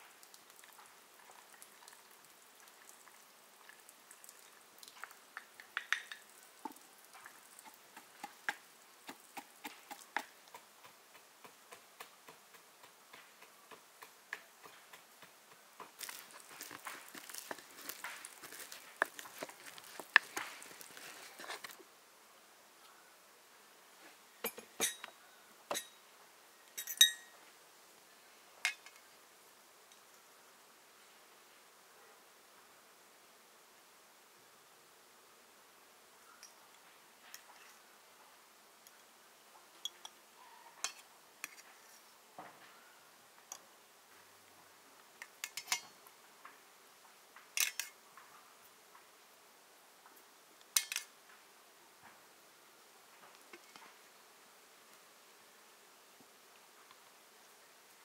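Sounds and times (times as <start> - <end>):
metal pan and spoon clinking: 24.5 - 25.1, 26.8 - 27.3, 47.6 - 47.9, 50.8 - 51.1.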